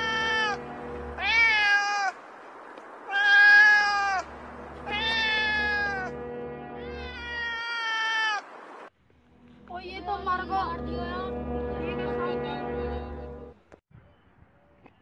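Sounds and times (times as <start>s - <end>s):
cat meowing: 0.0s - 0.6s, 1.2s - 2.2s, 3.1s - 6.1s, 6.8s - 8.4s.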